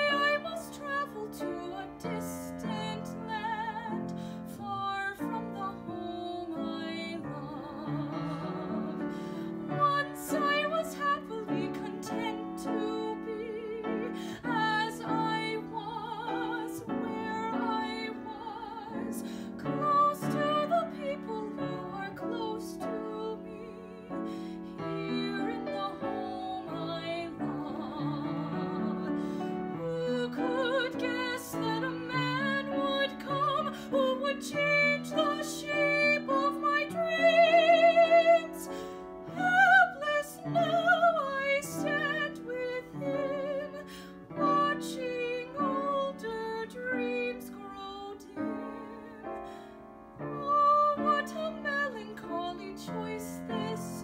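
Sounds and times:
woman singing with vibrato: 0.0s - 49.4s, 50.2s - 54.0s
upright piano: 0.0s - 54.0s.

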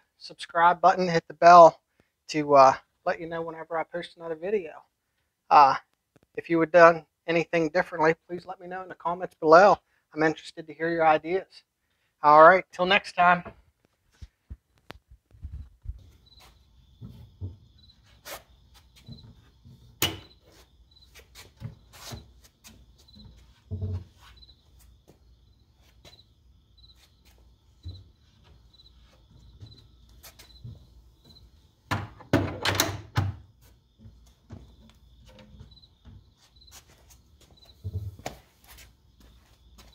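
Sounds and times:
knocks on cabinet doors: 31.9s - 33.4s
wooden cabinet doors clicking: 31.9s - 33.4s.

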